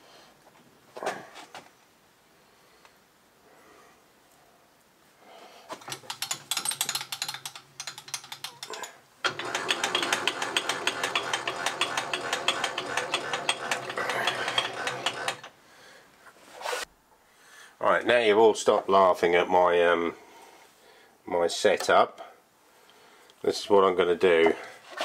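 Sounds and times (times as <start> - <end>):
mechanical gear clicking: 5.9 - 15.5.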